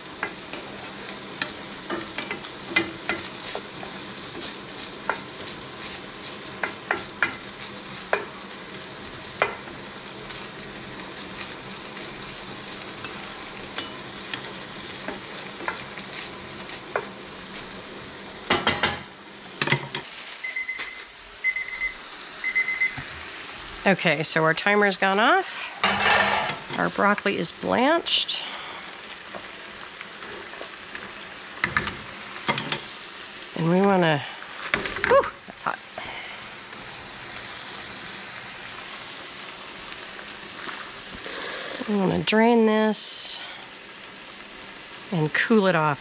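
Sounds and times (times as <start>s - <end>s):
meat sizzling in a skillet: 0.0s - 46.0s
timer beeping: 20.5s - 23.0s
spatula scraping a pan: 25.4s - 26.7s.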